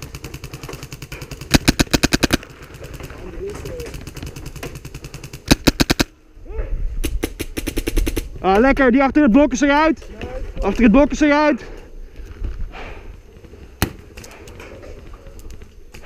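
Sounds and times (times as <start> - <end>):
airsoft gun full auto firing: 0.0 - 3.2, 3.8 - 6.1, 7.1 - 8.3.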